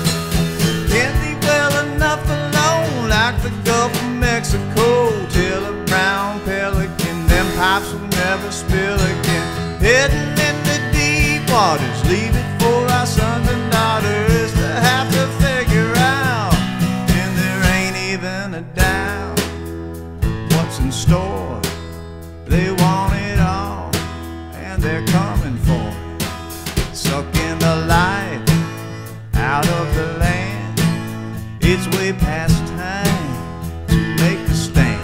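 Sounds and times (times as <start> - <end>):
man singing: 0.0 - 35.0
strummed acoustic guitar: 0.0 - 35.0
snare drum and cymbal hits: 25.1 - 28.1.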